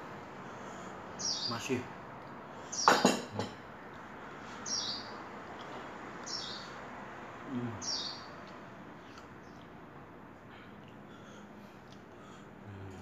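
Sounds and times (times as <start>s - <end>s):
small bird chirping: 1.1s - 1.8s, 4.5s - 6.8s, 7.5s - 9.8s.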